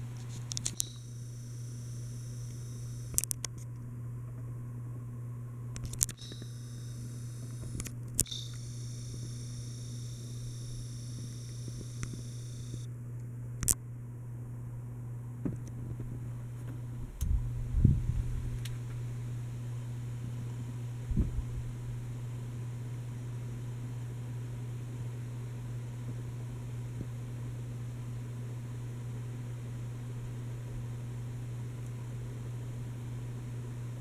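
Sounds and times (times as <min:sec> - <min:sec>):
camera zoom clicks and whine: 0:00.0 - 0:03.8, 0:05.7 - 0:12.9, 0:13.6 - 0:13.8
ceiling fan humming: 0:00.0 - 0:34.0
camera handling rumble: 0:00.2 - 0:01.0, 0:02.5 - 0:03.9, 0:05.7 - 0:06.6, 0:07.4 - 0:09.4.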